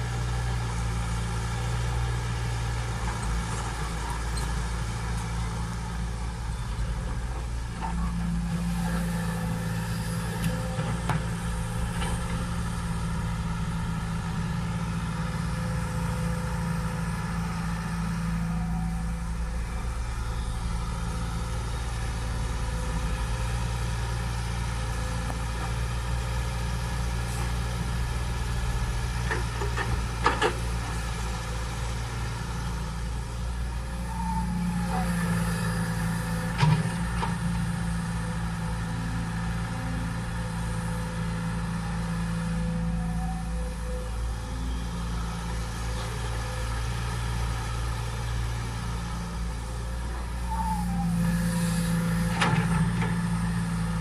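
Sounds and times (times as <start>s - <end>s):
excavator diesel engine running: 0.0s - 54.0s.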